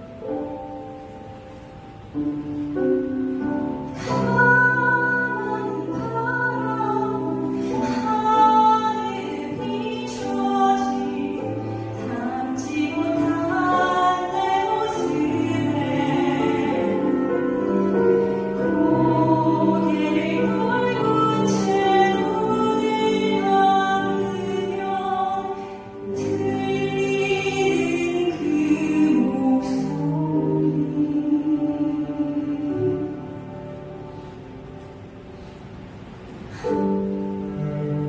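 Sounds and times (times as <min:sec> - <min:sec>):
woman singing a hymn: 0:03.9 - 0:34.2.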